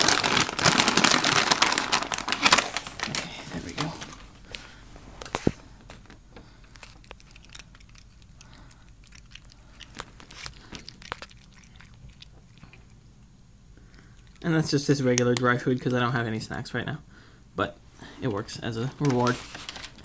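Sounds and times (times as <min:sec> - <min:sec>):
cat crunching dry kibble: 0:00.0 - 0:15.6.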